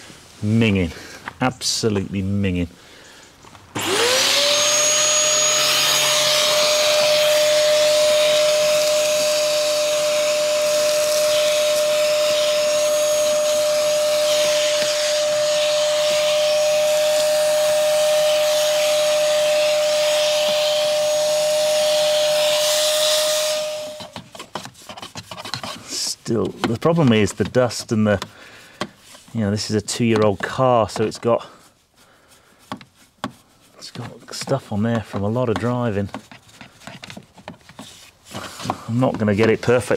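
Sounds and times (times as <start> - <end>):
vacuum sucking dirt and leaves: 3.5 - 39.9
vacuum cleaner motor whining: 3.8 - 24.3.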